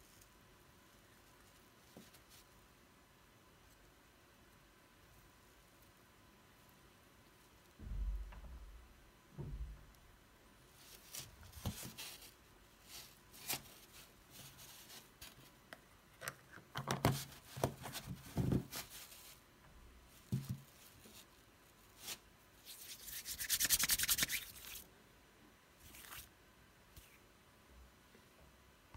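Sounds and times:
hands rubbing together: 22.6s - 24.8s.

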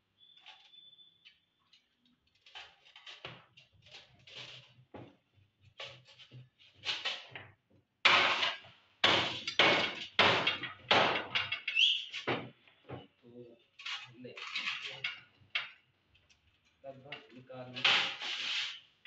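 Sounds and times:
scraping plastic parts: 13.8s - 15.8s, 17.7s - 18.8s.

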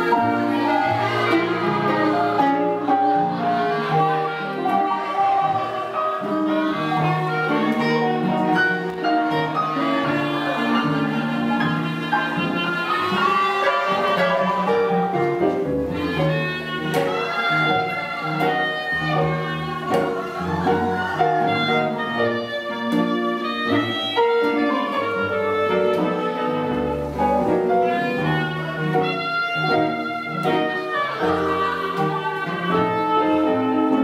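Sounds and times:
swing blues band playing: 0.0s - 34.0s.

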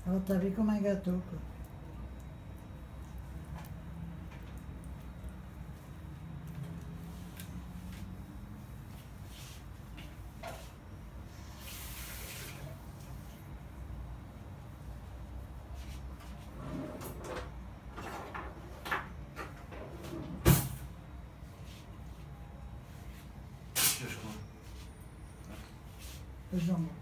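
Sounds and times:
kitchen knocks and clatters: 17.0s - 20.8s
short hiss: 23.8s - 24.2s.

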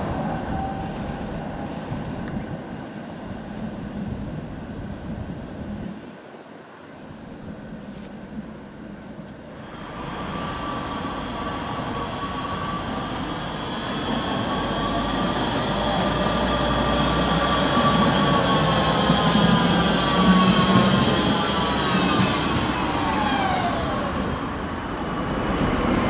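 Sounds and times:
wheels rumbling on rails: 7.9s - 26.0s
tram motor whine: 9.6s - 26.0s.

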